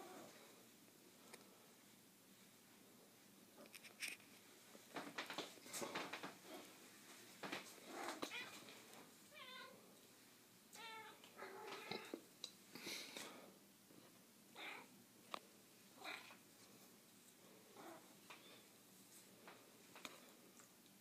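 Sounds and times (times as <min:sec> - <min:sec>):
cat meowing: 0:10.8 - 0:12.1.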